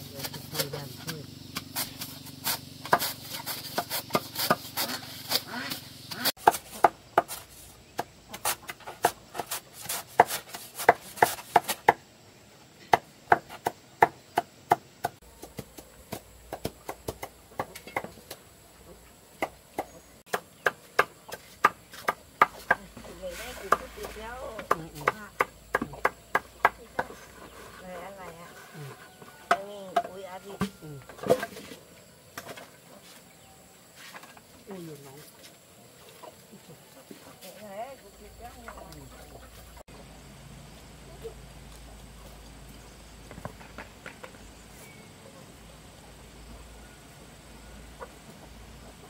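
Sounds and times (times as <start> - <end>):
knife chopping on wooden board: 1.6 - 5.4, 6.1 - 7.4, 8.0 - 12.0.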